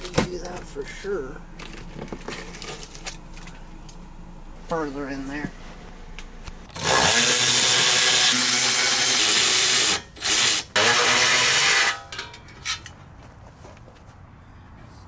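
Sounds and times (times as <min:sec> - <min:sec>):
cordless power driver running: 0:05.9 - 0:11.9.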